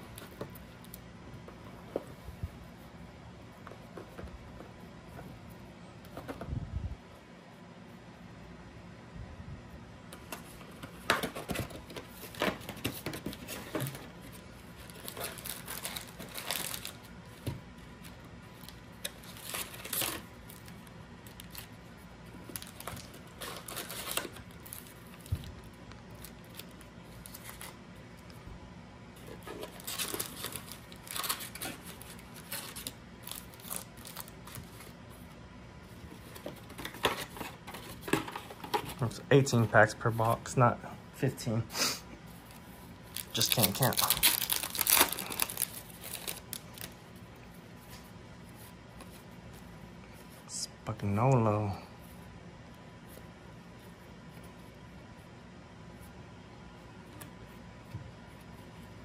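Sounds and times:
foil wrappers crinkling: 11.2s - 17.1s, 18.0s - 21.8s, 22.4s - 28.3s, 29.2s - 35.0s, 42.5s - 47.0s.

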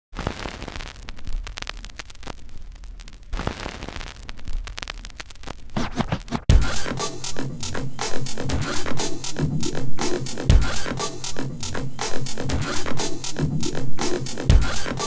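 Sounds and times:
crackling static and clicks: 0.1s - 7.0s.

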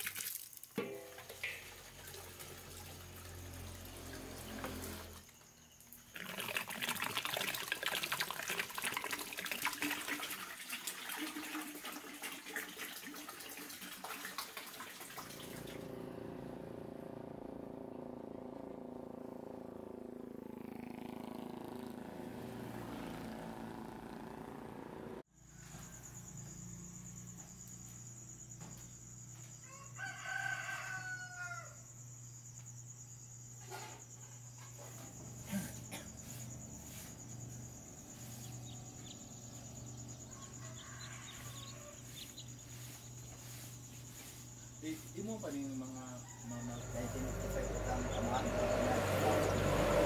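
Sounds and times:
low hum: 15.4s - 22.2s
rooster crowing: 29.5s - 32.0s, 39.8s - 43.6s, 45.5s - 50.0s.

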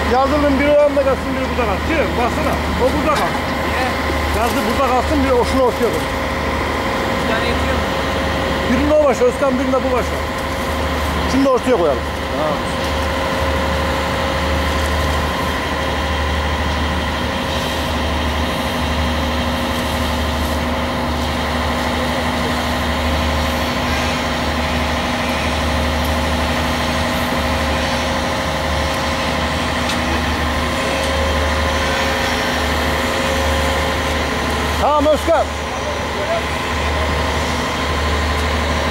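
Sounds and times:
heavy diesel engine running: 0.0s - 38.9s
multi-tone hum: 0.0s - 38.9s.

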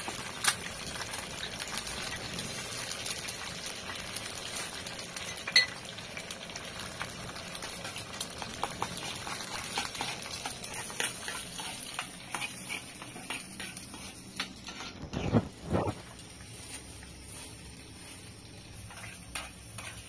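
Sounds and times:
eggs sizzling in a pan: 0.0s - 20.0s
metal spoon scraping pan: 7.8s - 16.0s, 18.8s - 20.0s.

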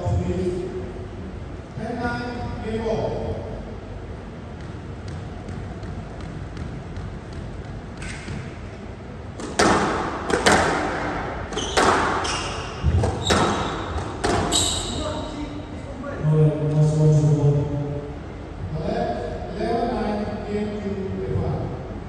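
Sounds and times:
squash ball cracks echoing: 4.5s - 14.5s.

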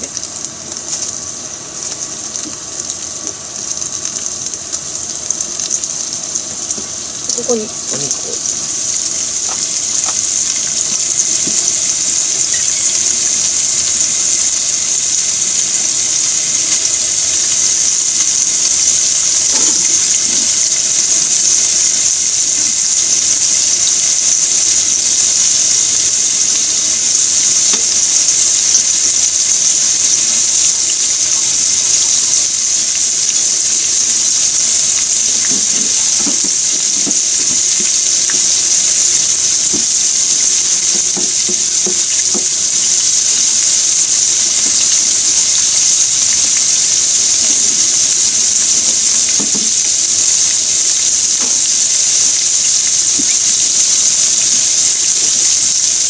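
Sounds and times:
meat sizzling in a frying pan: 0.0s - 56.0s.

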